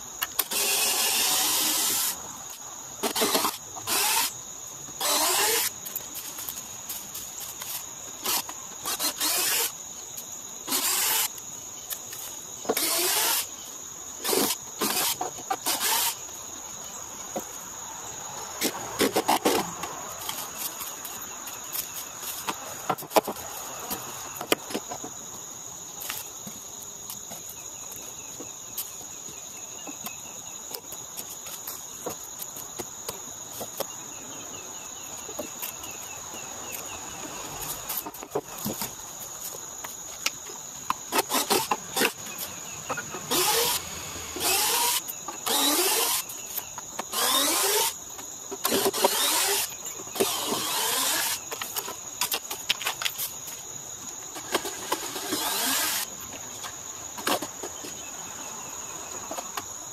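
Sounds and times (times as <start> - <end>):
high insect drone: 0.0 - 59.9
cordless drill whining: 0.4 - 2.2, 3.0 - 4.3, 5.0 - 5.7, 8.2 - 9.7, 10.7 - 11.3, 12.8 - 13.5, 14.2 - 16.2, 43.2 - 46.3, 47.1 - 48.0, 48.6 - 51.4, 54.9 - 56.1.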